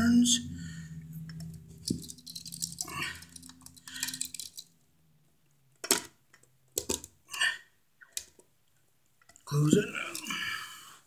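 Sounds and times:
metallic clicks and rattles of pliers: 1.3s - 4.7s.

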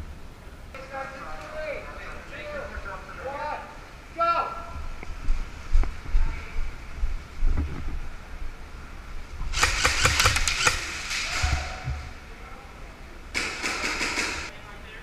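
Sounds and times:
airsoft gun rapid firing: 9.5s - 11.0s, 13.4s - 14.5s.

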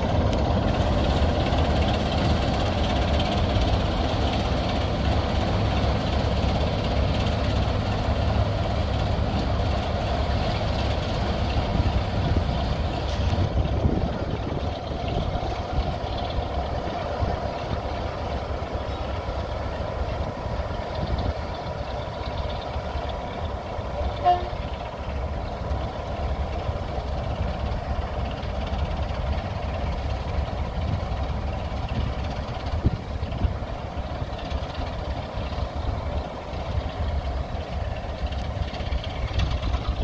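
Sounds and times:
diesel locomotive rumble: 0.0s - 40.0s
locomotive horn toot: 24.2s - 24.8s.

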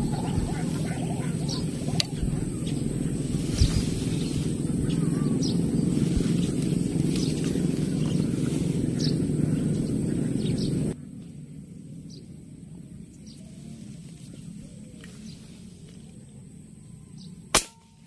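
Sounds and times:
wind on microphone: 0.0s - 11.0s
faint bird chirps: 0.0s - 18.0s
sharp crack: 17.6s - 18.0s.

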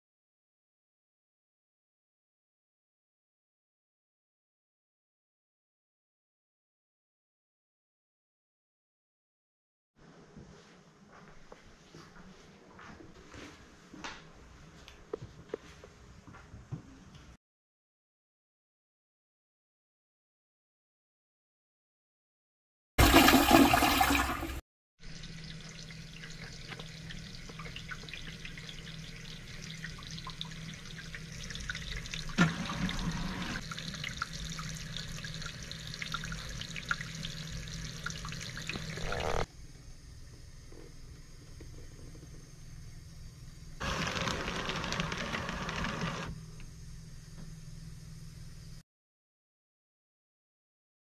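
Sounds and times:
faucet running into sink: 23.0s - 39.5s
toilet flushing: 23.0s - 39.5s
paper towel dispenser: 32.4s - 33.6s, 43.8s - 46.4s.

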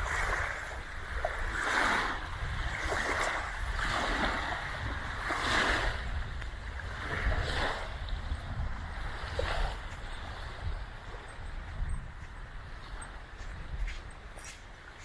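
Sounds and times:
small waves washing on sand: 0.0s - 15.0s
wind rumble on microphone: 0.0s - 15.0s.

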